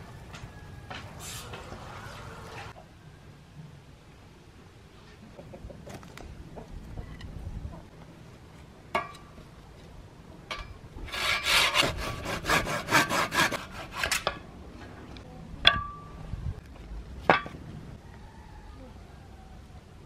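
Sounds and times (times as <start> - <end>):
hand saw rasping through branch: 11.1 - 14.3.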